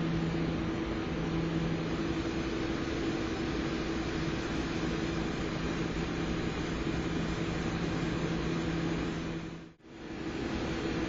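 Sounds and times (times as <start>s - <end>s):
laptop whirring hum: 0.0s - 11.0s.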